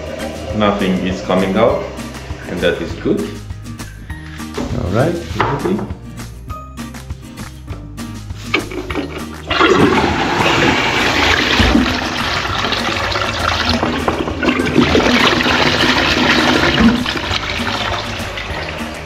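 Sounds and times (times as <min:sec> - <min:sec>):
toilet flushing: 0:00.0 - 0:03.3, 0:08.5 - 0:19.0.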